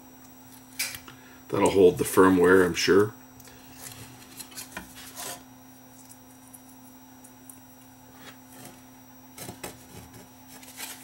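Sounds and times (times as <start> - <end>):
steady low hum: 0.0 - 11.0
circuit board handling scrapes: 3.7 - 5.5, 8.2 - 11.0.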